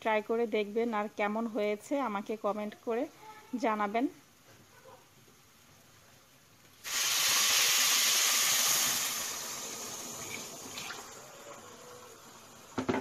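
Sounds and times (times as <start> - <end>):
hot water hissing into pot: 6.8 - 12.8.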